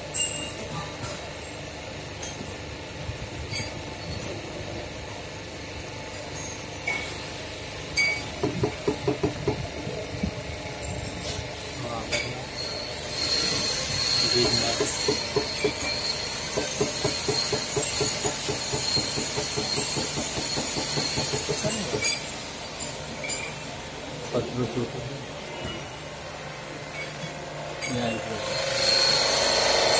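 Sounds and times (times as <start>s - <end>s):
hydraulic pump whine over hiss: 9.4s - 23.7s, 28.1s - 29.9s.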